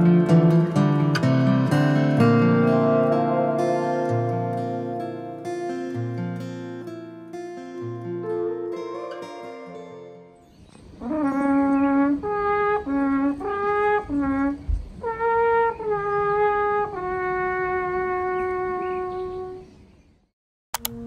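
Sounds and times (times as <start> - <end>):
alpenhorn playing held notes: 11.0 - 19.6.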